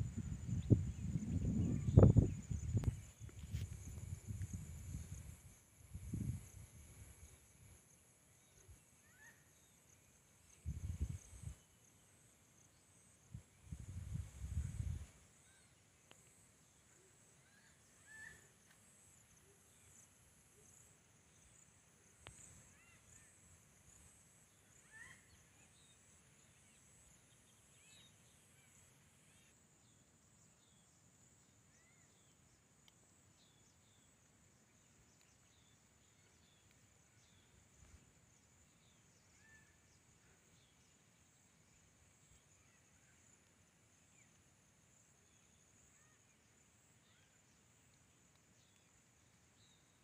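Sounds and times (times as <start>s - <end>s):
high-pitched insect drone: 0.0s - 10.0s.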